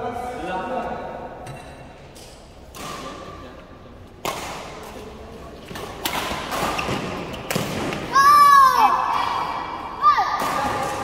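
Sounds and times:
badminton rackets hitting shuttlecock: 2.3s - 3.3s, 4.2s - 5.0s, 5.7s - 8.1s.

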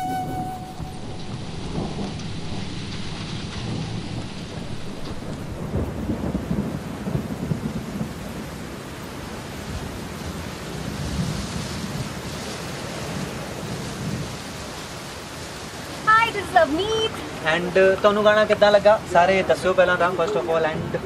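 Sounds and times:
low irregular rumbling: 0.3s - 6.4s.

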